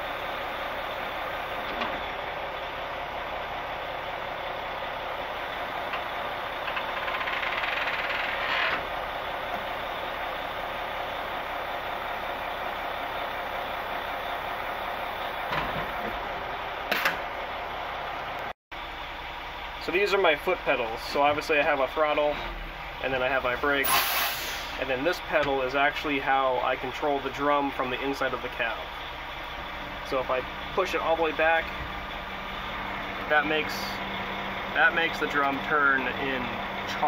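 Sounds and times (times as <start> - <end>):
diesel engine idling: 0.0 - 37.0
chute creaking: 6.6 - 9.0.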